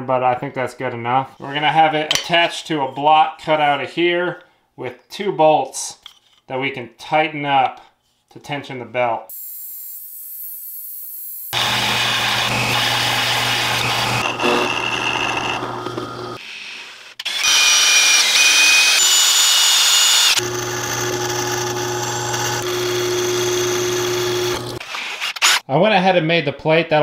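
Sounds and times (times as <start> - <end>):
belt sander grinding metal: 9.9 - 16.4, 17.2 - 25.6
drill press motor hum: 11.6 - 16.4, 17.3 - 24.8
drill bit squealing in metal: 17.3 - 20.4.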